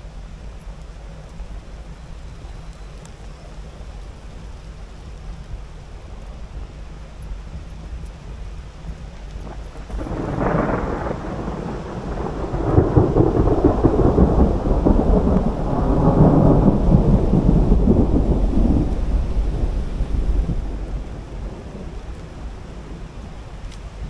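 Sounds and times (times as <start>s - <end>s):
rolling thunder: 9.4s - 24.0s.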